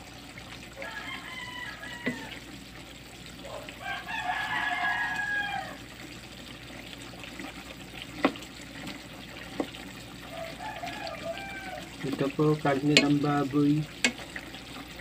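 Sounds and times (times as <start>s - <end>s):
rooster crowing: 0.8s - 2.5s, 3.4s - 5.9s, 10.2s - 12.0s
spatula knocking against pan: 2.0s - 2.2s, 8.2s - 8.4s, 12.8s - 13.4s, 14.0s - 14.3s.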